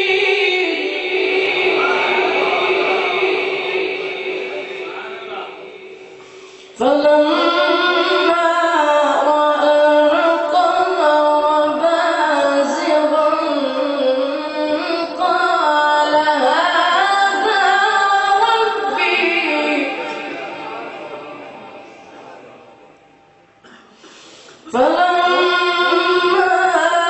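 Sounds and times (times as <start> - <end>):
man chanting religious recitation: 24.7 - 26.7.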